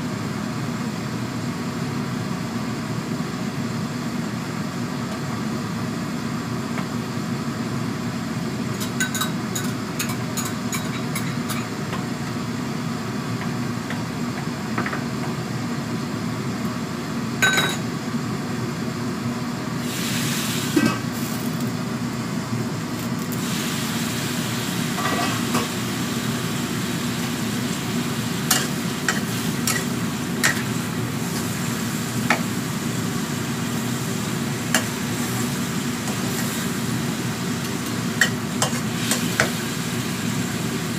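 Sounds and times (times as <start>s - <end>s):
gas burner low hum: 0.0s - 40.9s
food sizzling in a wok: 19.5s - 40.9s
steam hissing: 19.8s - 21.0s, 23.4s - 38.0s.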